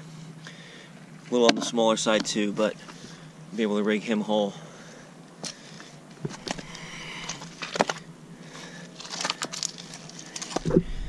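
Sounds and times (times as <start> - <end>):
pebbles and shells clicking and scraping: 9.0 - 11.0.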